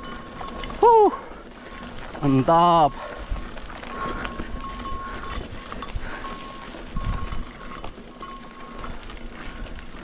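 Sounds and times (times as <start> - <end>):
mountain bike rolling rumble: 0.0 - 10.0.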